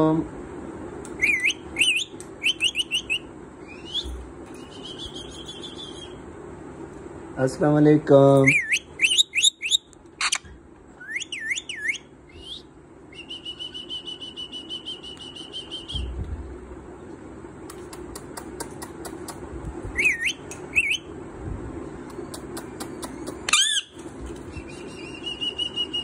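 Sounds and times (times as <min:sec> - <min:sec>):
parakeet whistling calls: 0:01.2 - 0:06.2, 0:08.4 - 0:10.4, 0:11.0 - 0:16.1, 0:19.9 - 0:21.1, 0:23.5 - 0:26.0
sharp clicks: 0:17.7 - 0:19.4
parakeet fast trill: 0:23.5 - 0:24.0.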